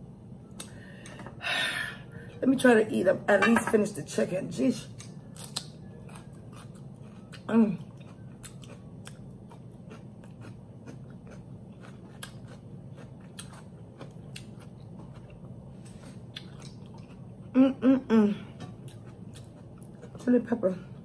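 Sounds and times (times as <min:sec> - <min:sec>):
steady low hum: 0:00.0 - 0:21.0
chewing food: 0:04.9 - 0:17.6, 0:18.5 - 0:21.0.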